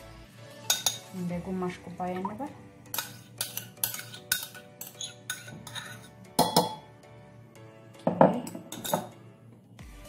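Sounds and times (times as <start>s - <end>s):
quiet background music: 0.0s - 10.0s
spoon clinking ceramic bowls: 0.6s - 1.1s, 2.9s - 7.0s, 8.0s - 9.2s.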